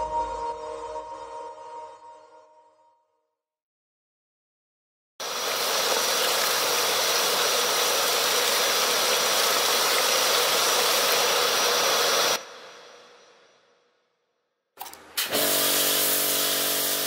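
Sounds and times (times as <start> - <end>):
wet and dry vacuum running: 5.2 - 12.4, 14.8 - 17.0
high vacuum motor whine: 5.2 - 12.8.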